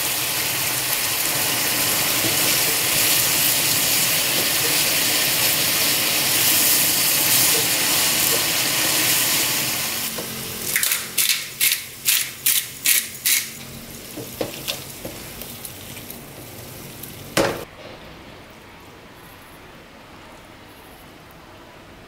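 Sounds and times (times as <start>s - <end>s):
stir-fry sizzling in a pan: 0.0s - 17.7s
pepper mill grinding: 10.7s - 13.6s.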